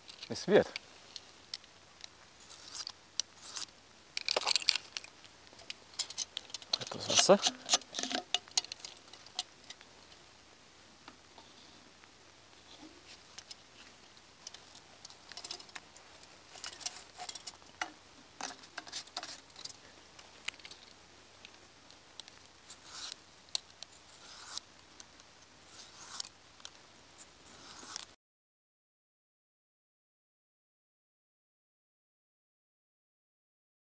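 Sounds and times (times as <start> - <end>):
knife scraping on sharpening stone: 2.5 - 3.7, 22.8 - 23.2, 24.2 - 24.6, 25.7 - 26.3, 27.5 - 28.0.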